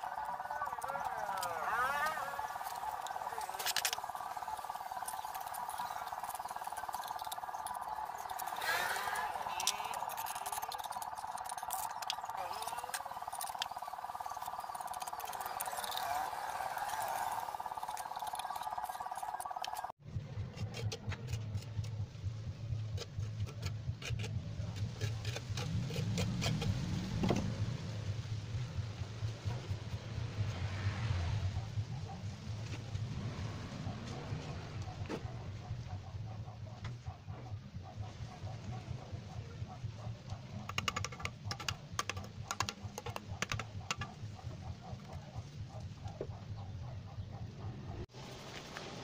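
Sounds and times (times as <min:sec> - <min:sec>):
trowel scraping mortar: 0:00.0 - 0:22.0, 0:22.7 - 0:27.4
metal trowel clicking on metal: 0:05.0 - 0:16.1.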